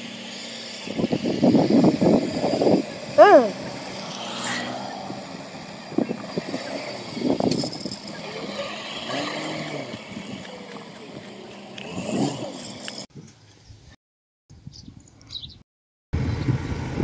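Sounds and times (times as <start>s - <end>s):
faint voices: 3.2s - 4.0s.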